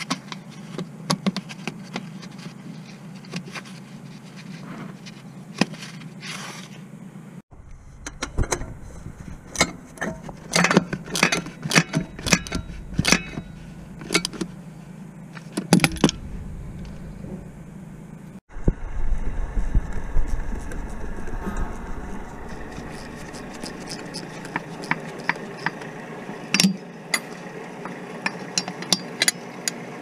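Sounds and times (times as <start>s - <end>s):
low rumble: 7.5s - 15.2s, 15.8s - 26.5s.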